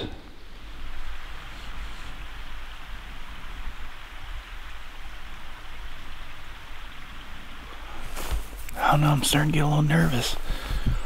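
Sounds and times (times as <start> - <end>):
wind buffeting microphone: 7.0 - 11.0.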